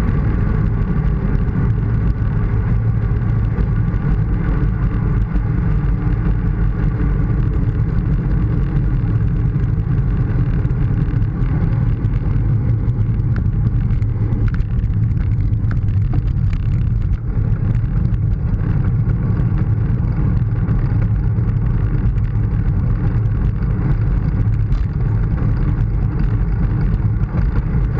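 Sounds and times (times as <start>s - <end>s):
bicycle tyres on asphalt: 0.0s - 27.9s
wind rush on microphone: 0.0s - 27.9s.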